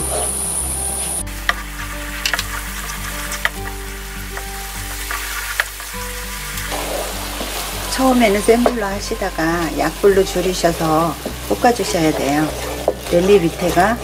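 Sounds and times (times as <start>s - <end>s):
sauce sizzling in oil: 0.0s - 14.0s
wooden spatula scraping pan: 0.0s - 14.0s.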